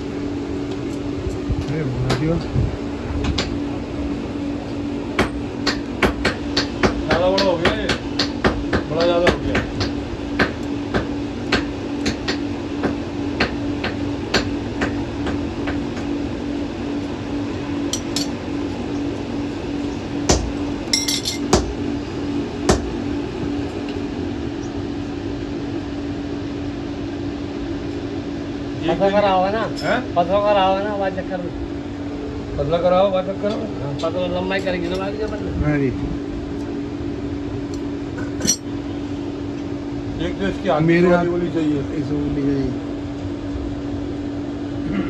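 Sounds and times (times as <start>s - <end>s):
steady low hum: 0.0s - 45.0s
hammer striking iron on anvil: 5.2s - 15.4s, 17.9s - 18.4s, 20.3s - 21.7s, 38.4s - 38.7s.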